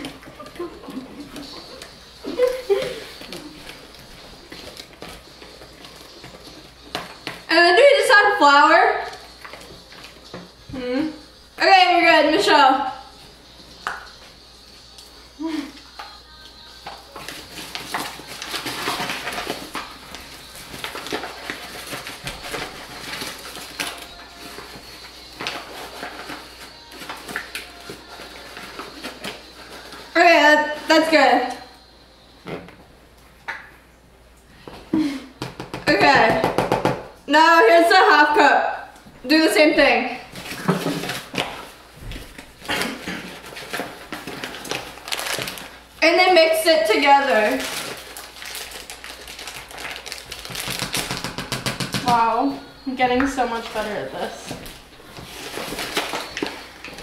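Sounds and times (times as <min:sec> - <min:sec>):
paper bag crinkling: 0:17.1 - 0:30.2, 0:40.2 - 0:46.0, 0:46.9 - 0:51.6, 0:53.3 - 0:57.0.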